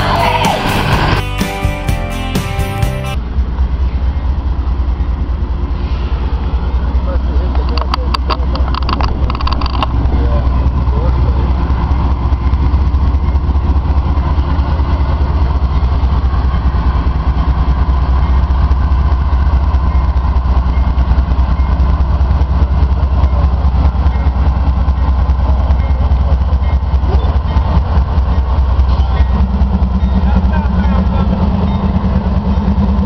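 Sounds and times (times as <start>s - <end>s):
diesel locomotives rumbling past: 0.0s - 33.0s.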